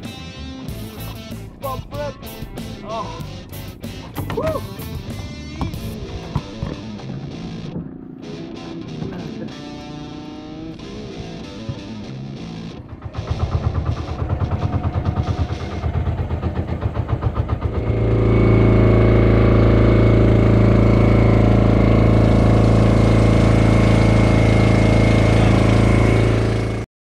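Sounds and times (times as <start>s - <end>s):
boat engine chugging: 0.7s - 7.1s, 10.8s - 26.9s.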